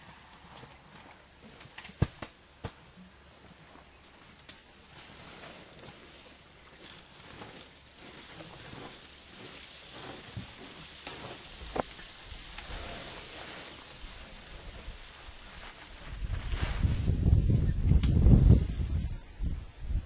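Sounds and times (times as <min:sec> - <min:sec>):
dry grass rustling and crackling: 0:03.8 - 0:19.4.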